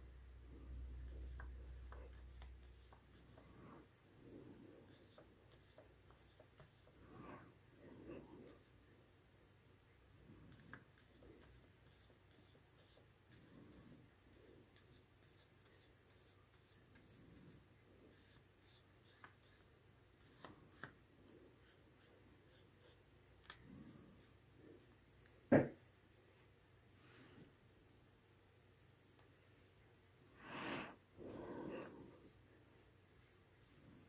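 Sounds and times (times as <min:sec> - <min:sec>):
brush pen rubbing on paper: 0:00.8 - 0:08.8, 0:10.3 - 0:26.0, 0:31.2 - 0:34.0.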